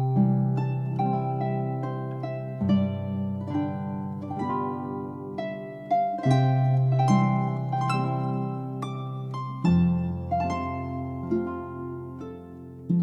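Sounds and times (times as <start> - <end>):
plucked harp-like notes: 0.0 - 13.0.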